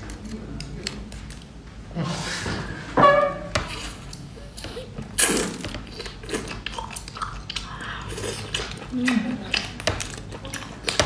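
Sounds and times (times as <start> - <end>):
wet chewing: 3.7 - 11.0.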